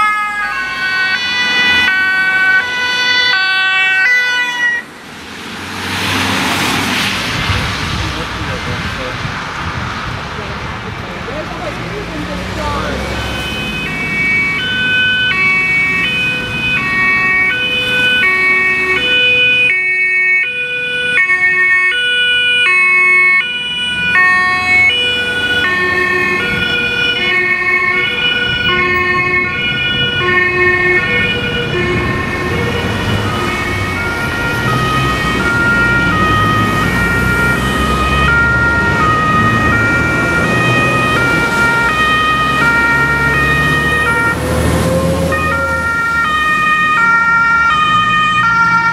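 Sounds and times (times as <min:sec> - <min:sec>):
two-tone emergency sirens: 0:00.0 - 0:07.6, 0:12.6 - 0:48.9
low vehicle rumble: 0:23.4 - 0:48.9.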